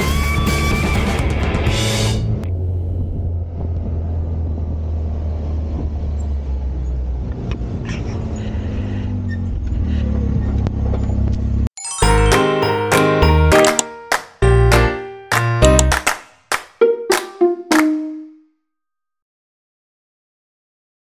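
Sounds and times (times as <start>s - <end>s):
buggy engine droning: 0.0s - 11.7s.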